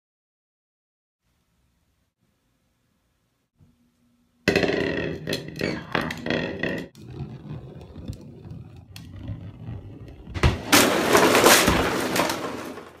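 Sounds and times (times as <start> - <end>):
plastic bottles clattering on wooden floor: 10.4 - 13.0.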